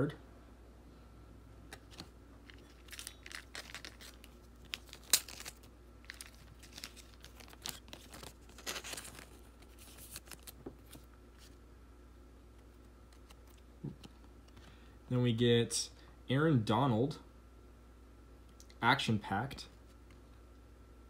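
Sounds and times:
trading cards rustling: 0:01.7 - 0:11.6, 0:12.6 - 0:14.6.

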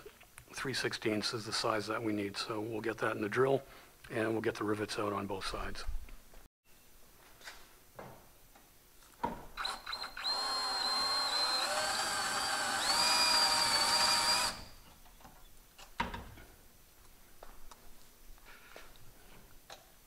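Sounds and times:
power drill motor whine: 0:09.6 - 0:14.8.

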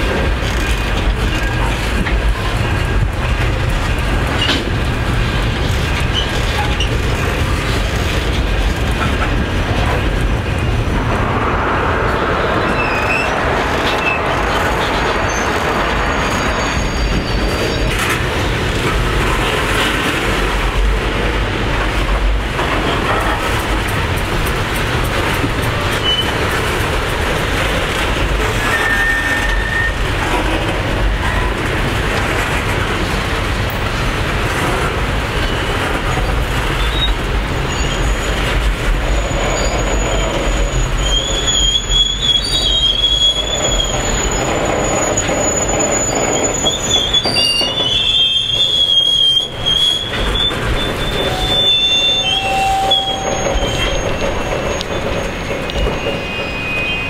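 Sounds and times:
steel wheels rumbling on rail: 0:00.0 - 0:57.0
high-pitched metallic squealing: 0:39.1 - 0:57.0.

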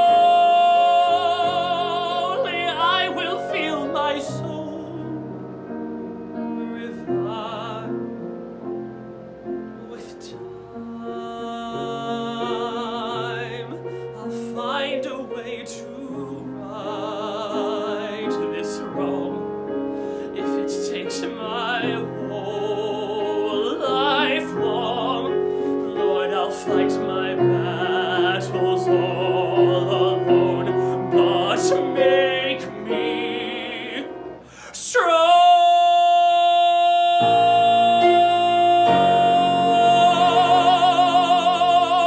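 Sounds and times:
man singing ballad with vibrato: 0:00.0 - 0:05.8, 0:06.4 - 0:08.3, 0:09.7 - 0:42.0
musical accompaniment: 0:00.0 - 0:42.0.

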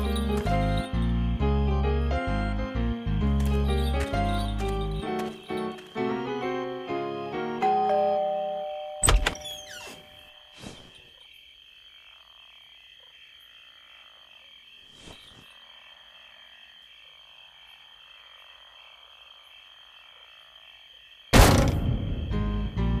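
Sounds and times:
cartoon doorbell chime: 0:07.6 - 0:10.0
loud thump: 0:21.4 - 0:22.3.

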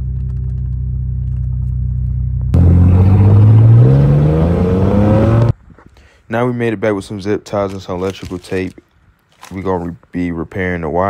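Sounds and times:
car engine accelerating: 0:00.0 - 0:05.5.

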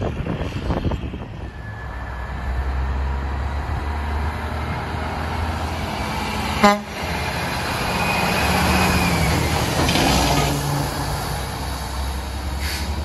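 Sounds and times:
wind buffeting microphone: 0:00.0 - 0:06.4
diesel truck engine: 0:00.0 - 0:13.0.

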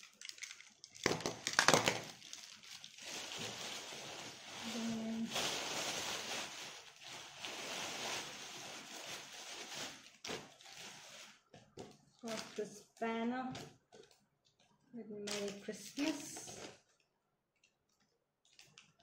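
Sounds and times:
plastic bag rustling and crinkling: 0:00.0 - 0:12.8, 0:15.3 - 0:17.0.

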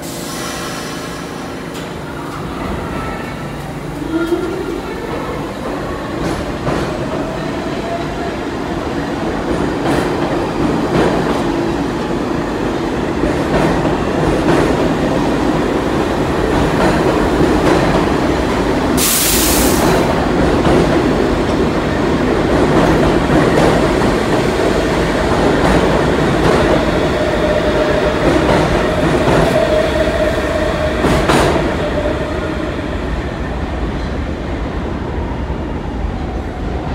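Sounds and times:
loud hiss: 0:00.0 - 0:01.6, 0:19.0 - 0:20.1
subway train motors whining: 0:00.0 - 0:36.9.

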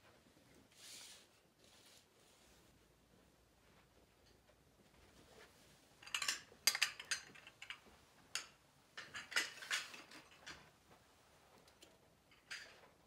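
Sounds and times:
plates and dishes clinking: 0:06.0 - 0:07.8, 0:08.4 - 0:10.6.

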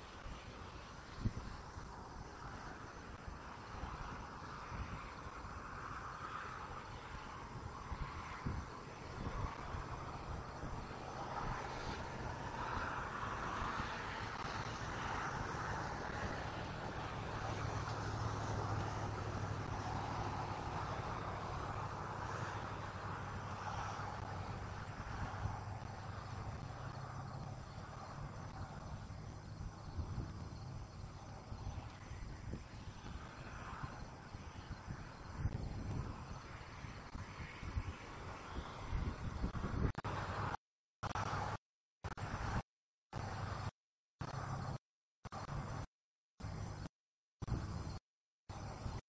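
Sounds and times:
distant engine drone: 0:00.0 - 0:37.3.

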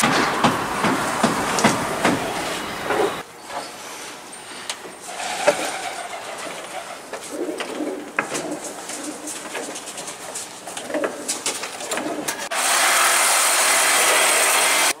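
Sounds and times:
loud steady hiss: 0:00.0 - 0:04.7, 0:12.5 - 0:15.0
pigeons cooing: 0:05.1 - 0:12.5.

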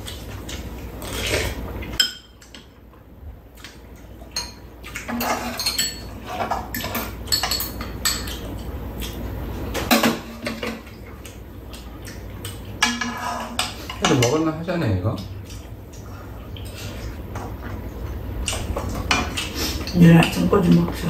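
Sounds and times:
utensils clinking against pan and bowls: 0:02.0 - 0:02.7, 0:04.2 - 0:09.2, 0:09.8 - 0:11.8, 0:12.4 - 0:15.4, 0:18.5 - 0:21.0.

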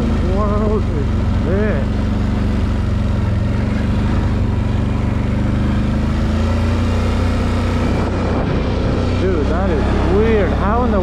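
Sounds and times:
atv engine running: 0:00.0 - 0:11.0.

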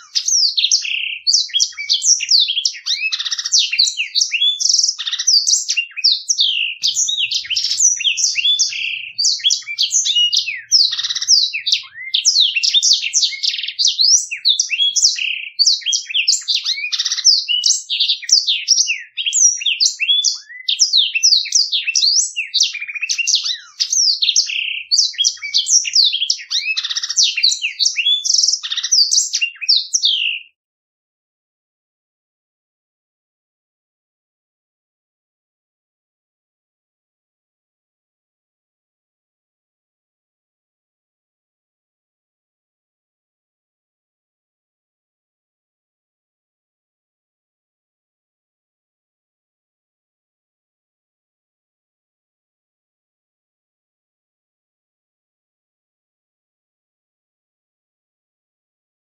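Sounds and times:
canary singing chirps and trills: 0:00.0 - 0:30.6.

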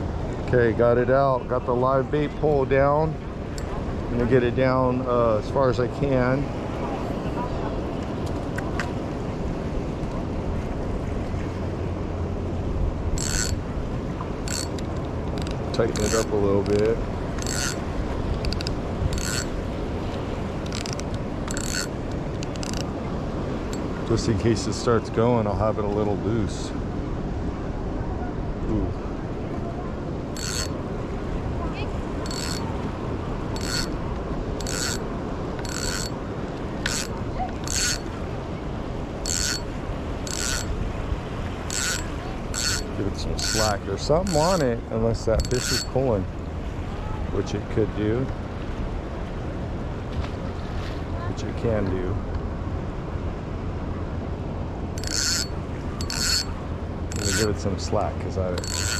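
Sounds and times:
surf: 0:00.0 - 0:58.9
wind buffeting microphone: 0:00.0 - 0:58.9
fishing reel line zip: 0:13.2 - 0:13.6, 0:14.5 - 0:17.8, 0:18.4 - 0:19.6, 0:20.6 - 0:22.9, 0:30.4 - 0:30.8, 0:32.2 - 0:32.7, 0:33.6 - 0:34.0, 0:34.6 - 0:35.0, 0:35.6 - 0:36.2, 0:36.8 - 0:38.1, 0:39.2 - 0:40.7, 0:41.7 - 0:44.6, 0:45.4 - 0:46.0, 0:55.0 - 0:57.6, 0:58.6 - 0:58.9.

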